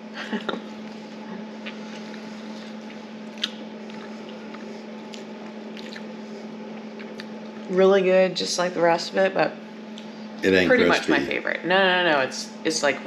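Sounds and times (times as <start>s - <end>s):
steady low hum: 0.0s - 13.0s
person chewing food: 1.6s - 7.6s
small mouth clicks: 2.9s - 6.1s.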